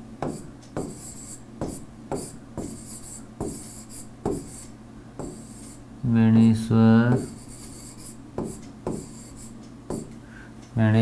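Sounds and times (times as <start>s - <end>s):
stylus scratching strokes: 0.2s - 5.8s, 7.1s - 9.6s.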